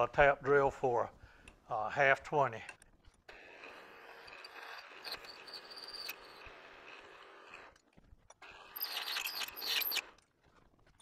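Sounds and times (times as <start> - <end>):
drill cutting into steel: 3.3 - 7.8, 8.4 - 10.2.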